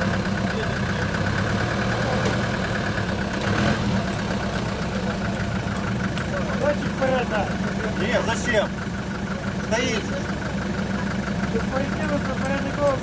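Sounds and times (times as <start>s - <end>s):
off-road vehicle engine idling: 0.0s - 13.0s.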